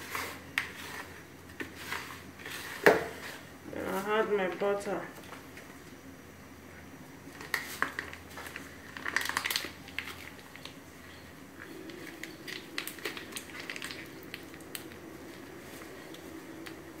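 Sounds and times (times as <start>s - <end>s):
plastic sachet crinkling: 7.4s - 10.8s, 11.6s - 15.0s.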